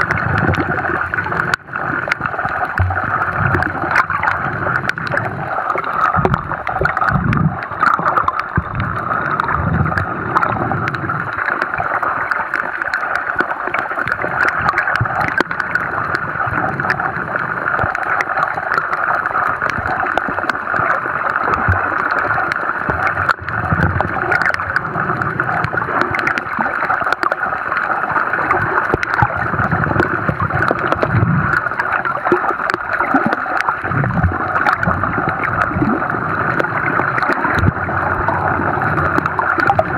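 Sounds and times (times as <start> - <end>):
muffled underwater rush: 0.0 - 39.9
small crackling clicks: 0.0 - 39.9.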